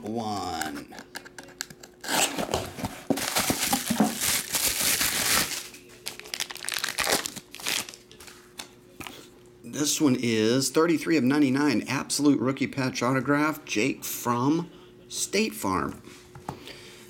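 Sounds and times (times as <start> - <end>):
wrapping crinkling and tearing: 2.0 - 8.2.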